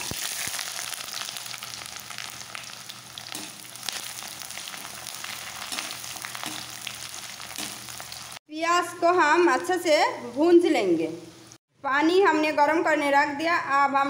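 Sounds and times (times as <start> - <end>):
onions sizzling in hot oil: 0.0 - 8.4.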